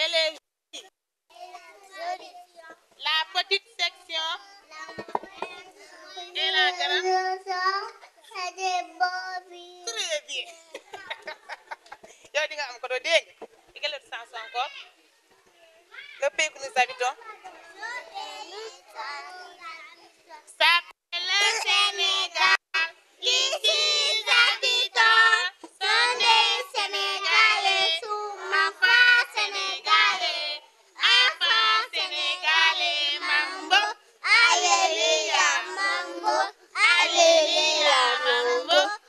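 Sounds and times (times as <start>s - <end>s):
small children singing: 4.6s - 9.8s, 17.4s - 20.0s, 21.3s - 39.0s.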